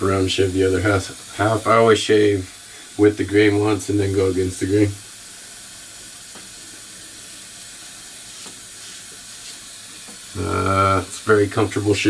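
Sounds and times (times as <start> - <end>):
tap running: 6.0 - 10.4.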